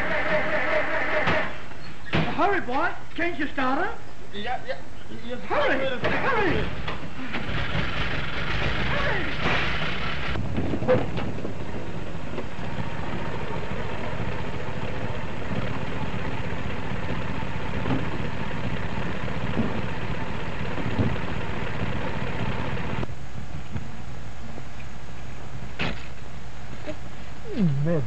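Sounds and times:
old car engine chugging: 5.4 - 23.1.

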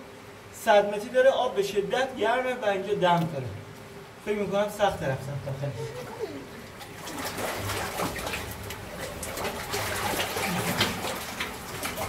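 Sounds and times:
water sloshing and splashing: 5.8 - 12.0.

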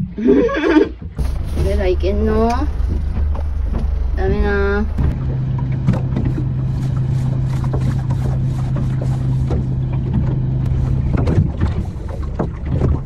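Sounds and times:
steady low hum: 0.1 - 13.0
wind and water crackles: 0.7 - 13.0
low rumble: 1.0 - 13.0.

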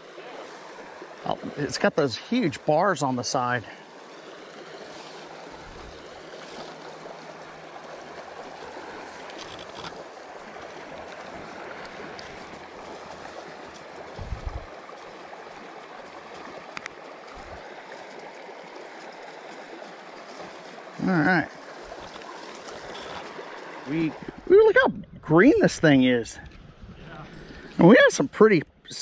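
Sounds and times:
river water rushing over rocks: 0.0 - 24.5
faint clicks: 16.7 - 17.0.

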